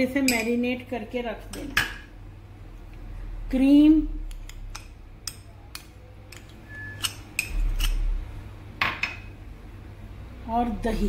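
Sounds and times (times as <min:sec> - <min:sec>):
metal spoon clinking on glass bowls: 0:00.2 - 0:00.6, 0:04.8 - 0:08.0.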